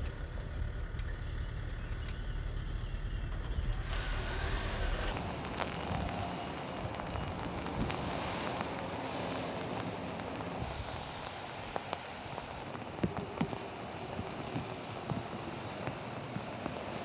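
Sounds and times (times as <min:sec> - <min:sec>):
wind buffeting microphone: 0:05.1 - 0:17.0.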